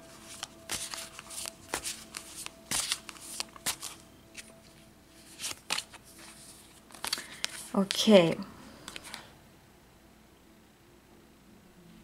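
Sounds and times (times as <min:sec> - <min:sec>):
cards shuffling: 0:00.0 - 0:08.1, 0:08.8 - 0:09.3.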